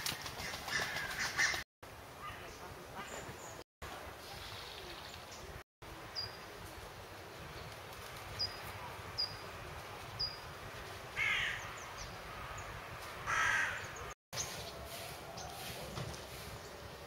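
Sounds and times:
crow cawing: 11.2 - 11.6, 13.2 - 14.0.

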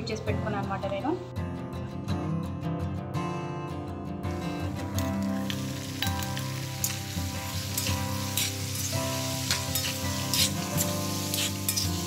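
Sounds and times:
chicken sizzling in hot oil: 4.8 - 12.0
ladle clinking and scraping pan: 7.7 - 12.0.

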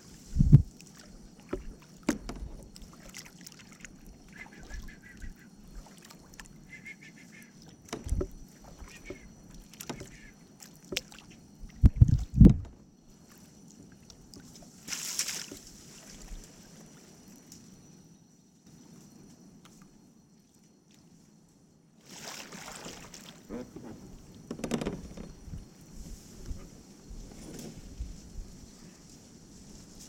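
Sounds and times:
paddle knocking on canoe hull: 1.4 - 2.8, 7.9 - 10.3, 11.7 - 12.8
water splash: 14.9 - 16.3, 22.1 - 23.4.

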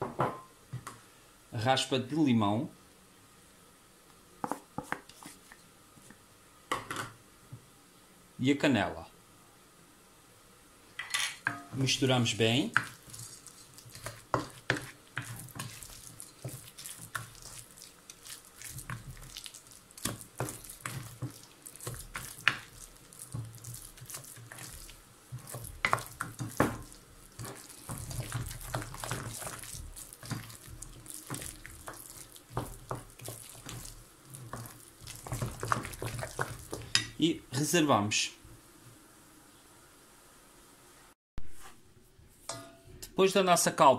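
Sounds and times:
wet filling squelching: 12.5 - 37.0.

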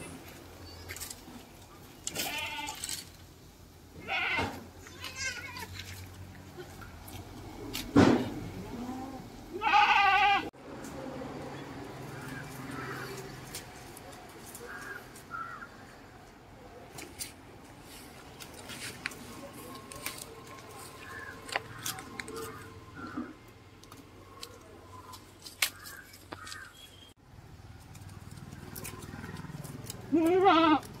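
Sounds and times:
goats tearing and chewing leaves: 0.0 - 3.4, 4.0 - 8.9, 10.7 - 31.0
goat bleat: 2.1 - 2.8, 4.0 - 5.9, 8.6 - 10.5, 29.2 - 31.0
leaves snapping and rustling: 17.0 - 22.7, 23.8 - 26.7, 27.7 - 31.0.

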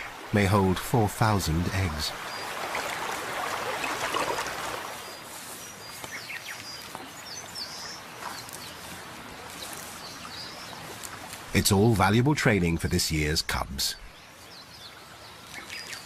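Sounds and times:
river water splashing and rushing: 0.0 - 13.2, 14.1 - 16.0.

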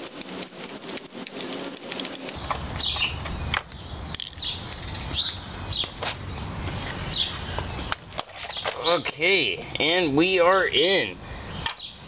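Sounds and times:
screwdriver clicking and scraping: 0.0 - 2.4
bird chirps: 0.0 - 6.4.

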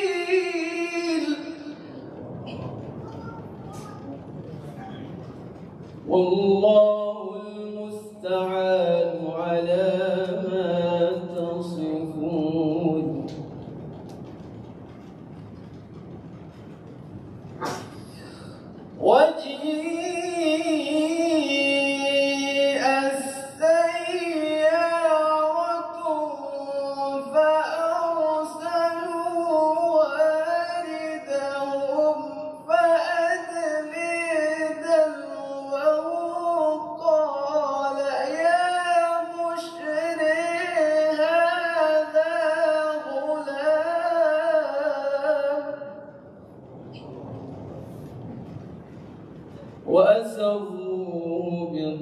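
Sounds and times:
man chanting a recitation: 0.0 - 2.5, 6.1 - 13.6, 19.0 - 46.3, 49.9 - 52.0.

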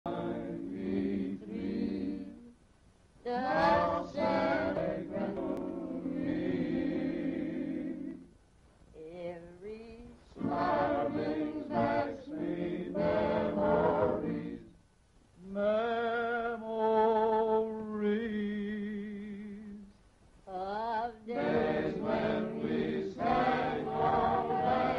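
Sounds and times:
choir singing: 0.1 - 2.5, 3.3 - 8.3, 10.3 - 14.7, 21.2 - 24.9.

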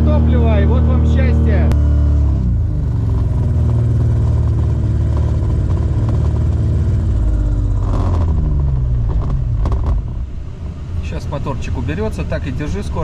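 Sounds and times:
propeller engine droning: 0.0 - 13.0.

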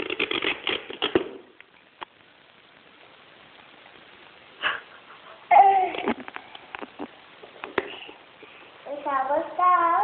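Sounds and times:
tape peeling and tearing: 0.0 - 1.4.

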